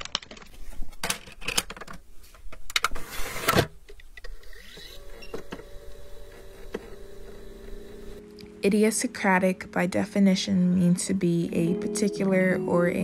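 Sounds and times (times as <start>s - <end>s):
tape motor whirring: 4.2s - 8.2s.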